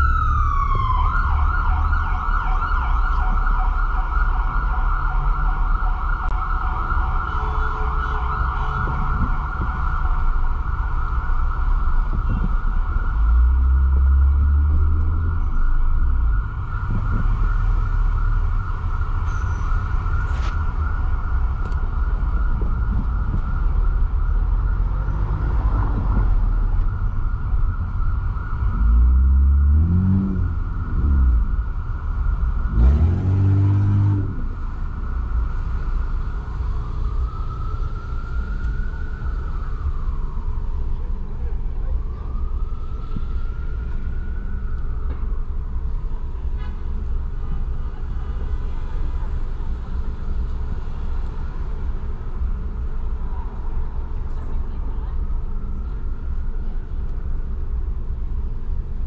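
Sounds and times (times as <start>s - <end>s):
ambulance siren wailing: 0.0s - 46.4s
city traffic noise: 0.0s - 59.0s.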